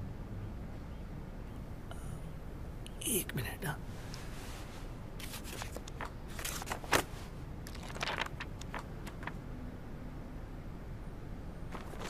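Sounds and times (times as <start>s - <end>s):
quiet rustling: 3.8s - 9.4s.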